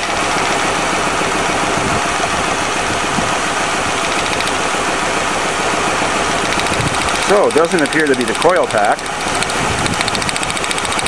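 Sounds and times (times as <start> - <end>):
car engine idling rough: 0.0 - 11.0
spark plug wire arcing: 6.4 - 11.0.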